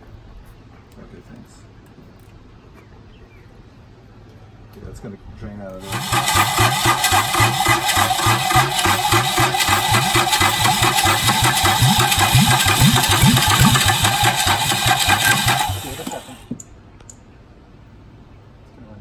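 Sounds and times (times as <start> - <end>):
diesel engine cranking and starting: 5.8 - 16.6.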